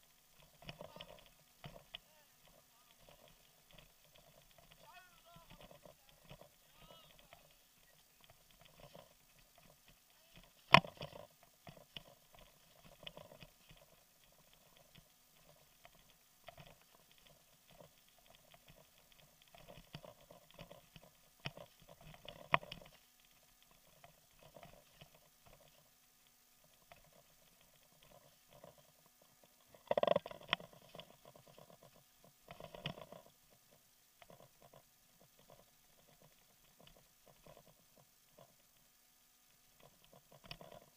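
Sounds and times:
bicycle rattling and clicking: 0:00.1 - 0:25.9.

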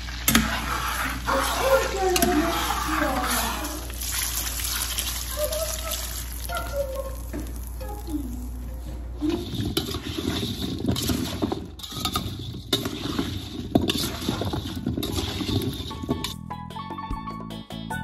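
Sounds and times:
butter pouring over potatoes: 0:00.0 - 0:08.1
utensil scraping metal bowl: 0:00.2 - 0:07.6, 0:08.8 - 0:16.4.

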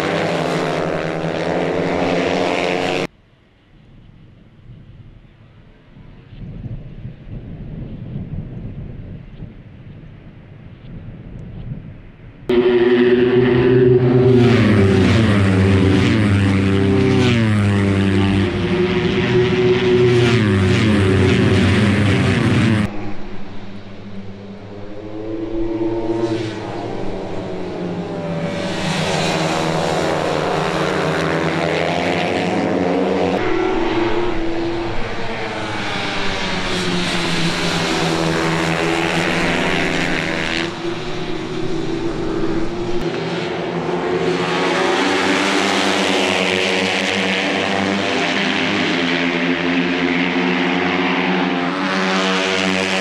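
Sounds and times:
racing motorcycles at high revs: 0:00.0 - 0:03.1, 0:12.5 - 0:22.9, 0:23.6 - 0:53.0.

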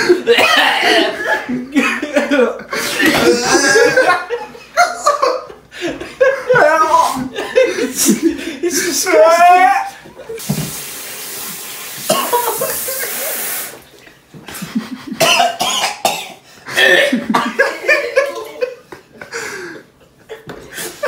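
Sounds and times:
man coughing and gagging: 0:00.0 - 0:04.3, 0:12.1 - 0:12.9, 0:15.0 - 0:18.1
rushing hiss: 0:10.4 - 0:13.8.

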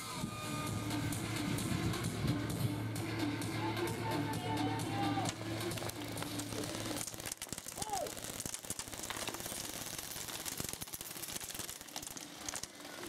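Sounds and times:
airsoft rifles firing: 0:05.1 - 0:13.0
pellets hitting wooden barriers: 0:05.2 - 0:13.0
person calling out: 0:07.8 - 0:08.2.

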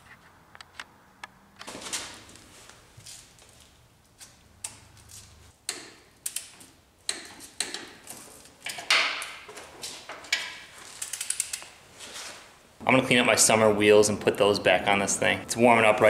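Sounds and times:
ratcheting wrench clicking: 0:10.3 - 0:11.7.

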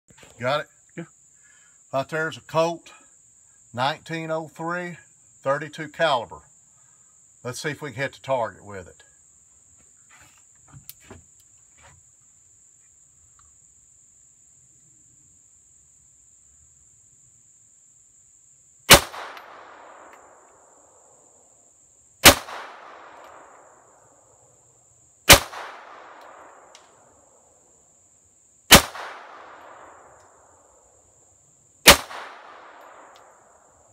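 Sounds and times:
pistol shots with echo: 0:18.9 - 0:20.4, 0:22.2 - 0:23.7, 0:25.3 - 0:26.7, 0:28.7 - 0:30.1, 0:31.8 - 0:33.4.

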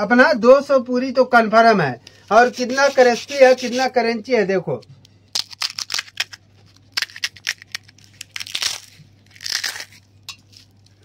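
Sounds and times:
crisp shells crunching by hand: 0:05.3 - 0:11.0.

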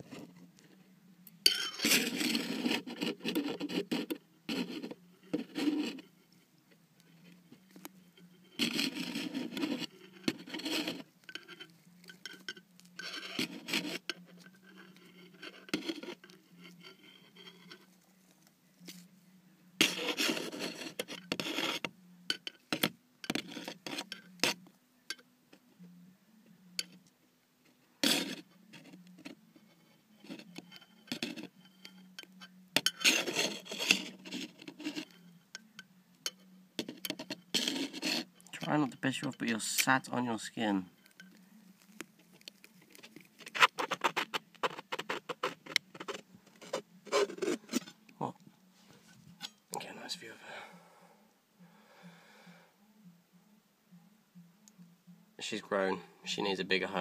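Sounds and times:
faint low hum: 0:00.0 - 0:57.0
tongs scraping in plastic enclosure: 0:01.5 - 0:06.1, 0:07.2 - 0:17.9, 0:19.8 - 0:24.6, 0:30.2 - 0:35.7, 0:36.3 - 0:48.0.

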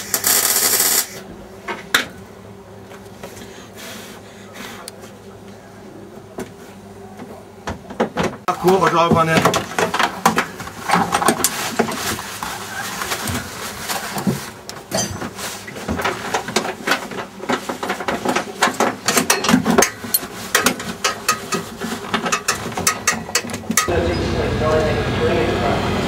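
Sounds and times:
tools clicking and rattling: 0:16.1 - 0:23.9.

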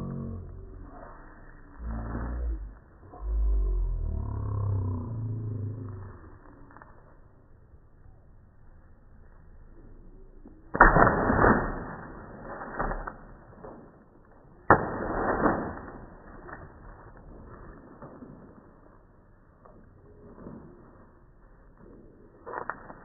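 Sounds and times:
water balloon smacking on concrete: 0:14.6 - 0:16.6.

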